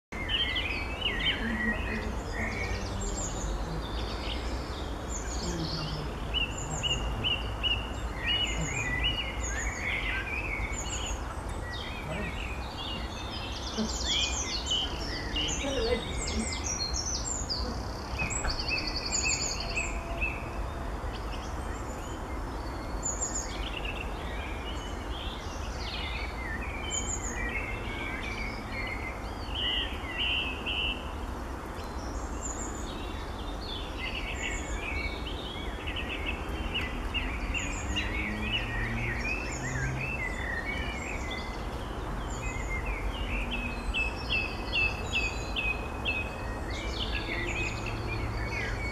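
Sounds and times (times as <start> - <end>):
small birds chirping: 0.1 - 48.9.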